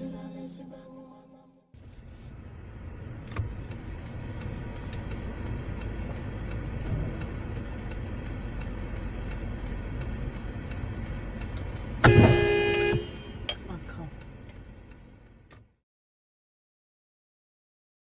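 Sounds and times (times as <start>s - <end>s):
car engine and road rumble: 1.7s - 15.8s
light regular ticking: 3.3s - 12.0s, 13.0s - 15.6s.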